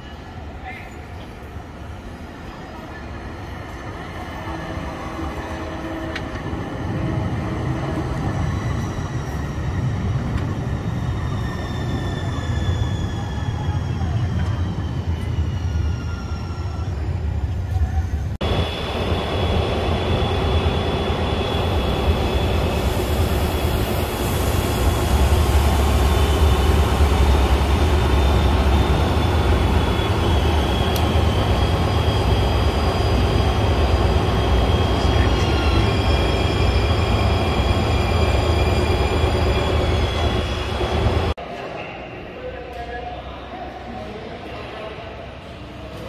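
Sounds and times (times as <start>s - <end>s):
rumble of tram cars and wheels: 0.0s - 41.4s
high steady whine: 18.4s - 41.3s.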